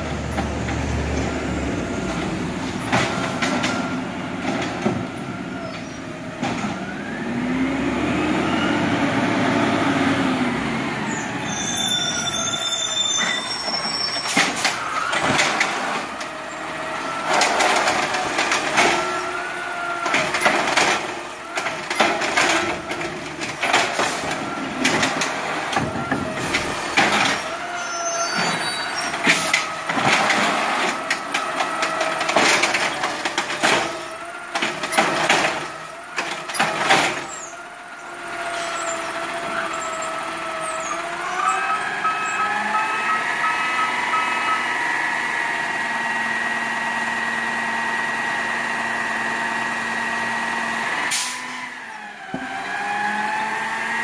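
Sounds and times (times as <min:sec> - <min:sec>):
garbage truck engine running: 0:00.0 - 0:54.0
garbage cart banging and clattering: 0:02.6 - 0:05.1, 0:17.1 - 0:19.3, 0:20.0 - 0:37.5.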